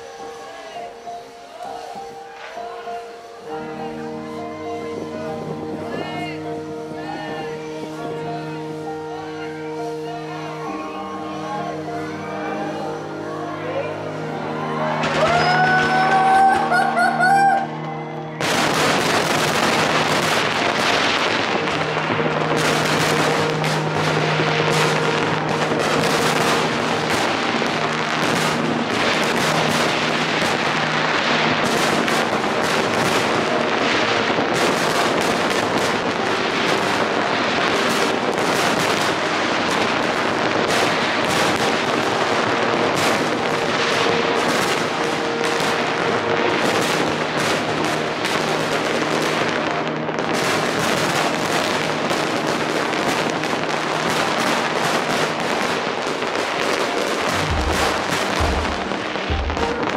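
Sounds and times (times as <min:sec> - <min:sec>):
fireworks bangs and crackles: 0:00.0 - 0:59.9
steady low tones: 0:57.2 - 0:59.9.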